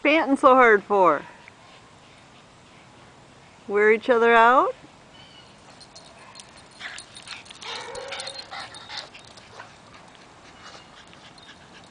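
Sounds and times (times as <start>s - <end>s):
dog whining yips and squeals: 7.6s - 9.6s.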